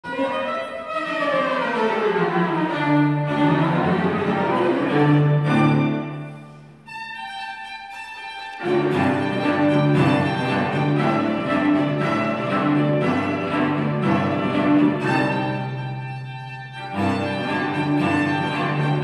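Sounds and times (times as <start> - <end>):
violin melody: 0.0 - 19.0
low bowed cello notes: 0.1 - 7.0, 8.5 - 19.0.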